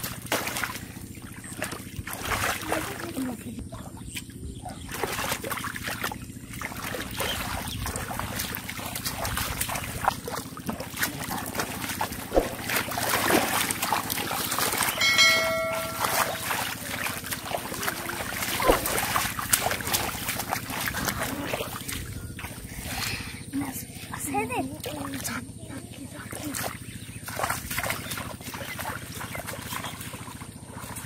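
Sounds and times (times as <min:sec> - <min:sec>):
muddy water splashing: 0:00.0 - 0:31.0
short held tone: 0:15.0 - 0:16.7.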